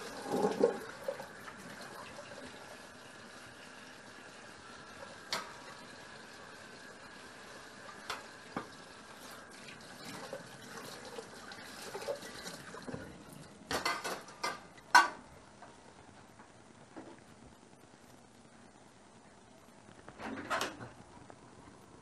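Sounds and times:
water running from tap: 0:00.0 - 0:14.6
dishes clattering: 0:13.7 - 0:15.2.

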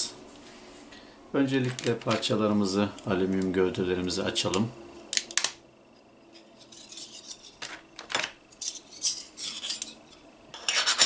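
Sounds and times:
metal parts clinking and rattling: 0:06.6 - 0:10.0.

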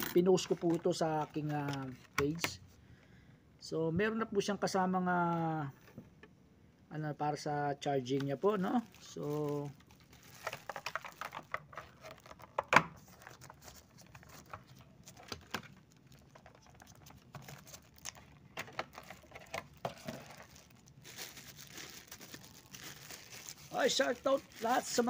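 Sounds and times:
plastic packaging crinkling: 0:00.0 - 0:02.4, 0:08.0 - 0:25.0.

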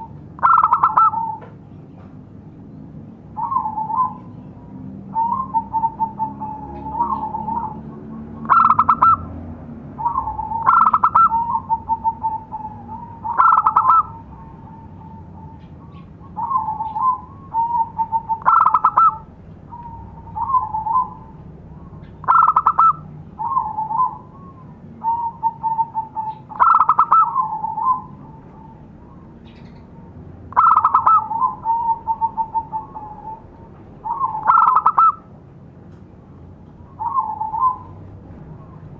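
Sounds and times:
dove cooing: 0:00.0 - 0:01.6, 0:03.4 - 0:04.4, 0:05.1 - 0:09.4, 0:10.0 - 0:35.3, 0:36.8 - 0:38.9.

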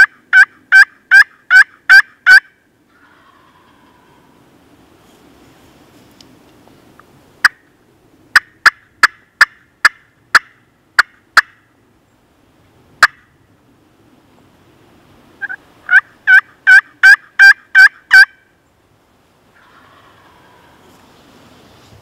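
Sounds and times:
turkey clucking: 0:00.0 - 0:04.2, 0:15.4 - 0:18.4, 0:19.6 - 0:20.8
turkey yelps: 0:00.0 - 0:04.3, 0:15.4 - 0:18.4, 0:19.6 - 0:20.9.

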